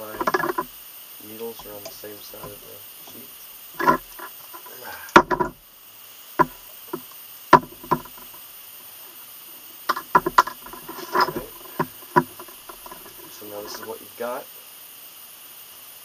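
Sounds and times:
tools knocking on wooden workbench: 0:00.0 - 0:00.7, 0:03.8 - 0:04.3, 0:05.2 - 0:05.6, 0:06.4 - 0:08.4, 0:09.9 - 0:13.3.

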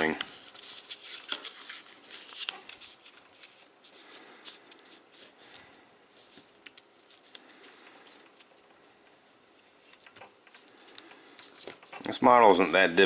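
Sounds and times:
sharp paper crackle: 0:00.0 - 0:05.6
paper rustling and crackling: 0:00.0 - 0:12.6
small crisp paper ticks: 0:06.4 - 0:08.4.

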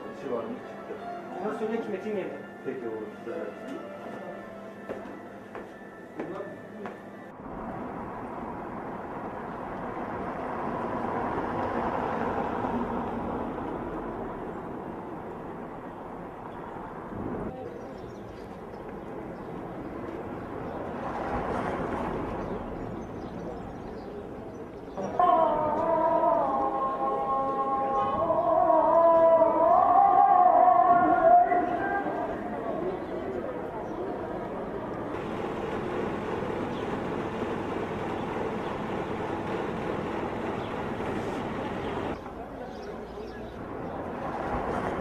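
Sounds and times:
passers-by: 0:00.0 - 0:45.0
street traffic: 0:00.0 - 0:45.0
vehicle passing: 0:07.3 - 0:17.6, 0:19.6 - 0:24.4, 0:25.0 - 0:42.4, 0:43.4 - 0:45.0.

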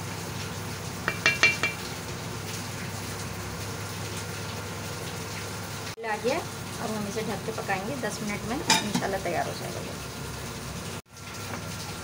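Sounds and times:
pot bubbling: 0:00.0 - 0:12.0
utensil clinking on metal pot: 0:01.0 - 0:01.9, 0:08.6 - 0:09.2.

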